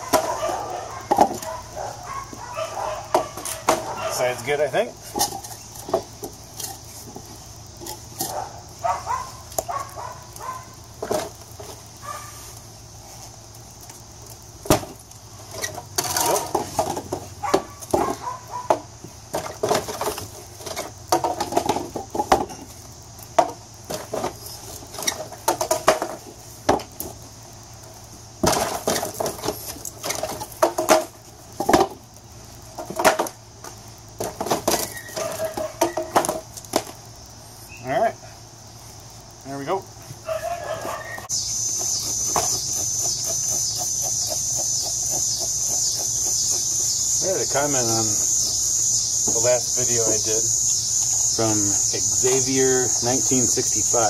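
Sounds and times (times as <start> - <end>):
wooden board knocking on tire: 1.1 - 1.5, 16.1 - 22.6, 23.4 - 24.4, 41.8 - 46.7.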